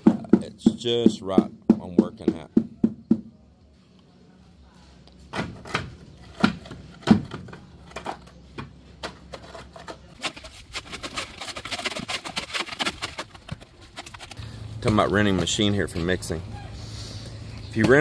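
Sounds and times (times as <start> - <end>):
rubber hammer knocking wood: 0.0 - 3.3
shovels scraping wet concrete: 9.4 - 16.1.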